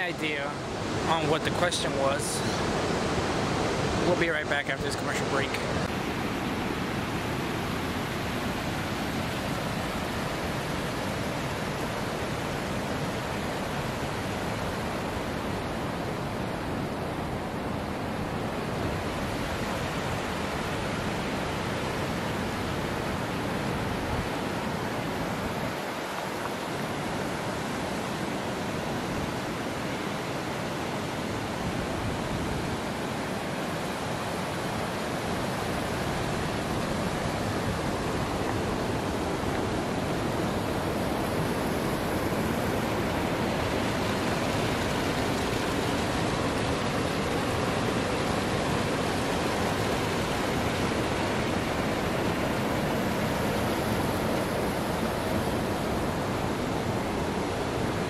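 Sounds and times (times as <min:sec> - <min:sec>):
stream water rushing: 0:00.0 - 0:58.0.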